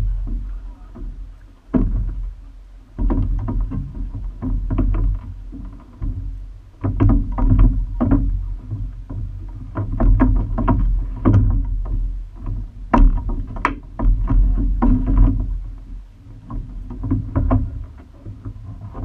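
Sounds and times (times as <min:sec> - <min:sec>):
low rumble: 0:00.0 - 0:09.8
oars knocking and clicking: 0:00.0 - 0:19.0.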